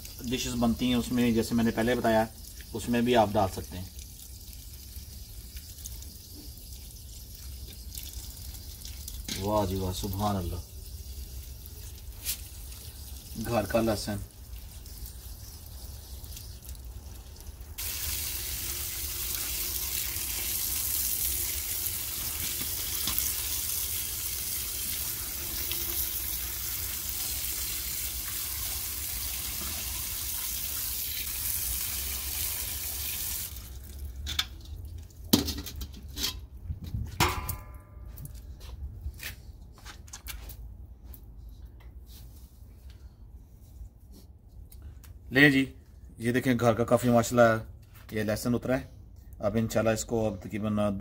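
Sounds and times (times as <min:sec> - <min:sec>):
water pouring into a colander: 0:00.0 - 0:35.4
metal colander clattering: 0:35.3 - 0:36.5.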